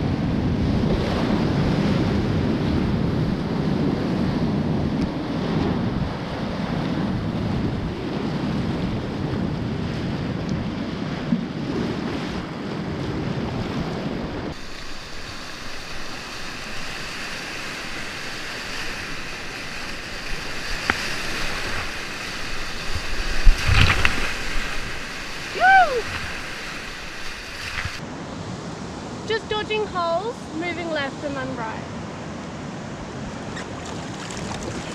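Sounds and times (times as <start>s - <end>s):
whitewater rushing: 14.5s - 28.0s
water splashing slaps: 14.6s - 28.0s, 33.6s - 34.9s.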